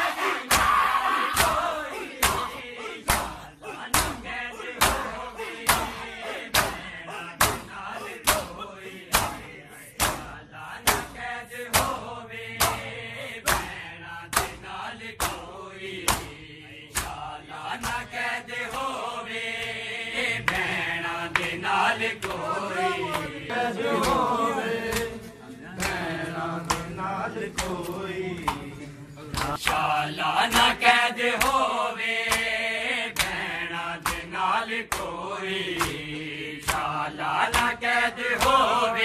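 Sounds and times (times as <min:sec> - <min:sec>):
men chanting a lament: 0:00.0 - 0:39.0
men slapping chests in unison: 0:00.0 - 0:39.0.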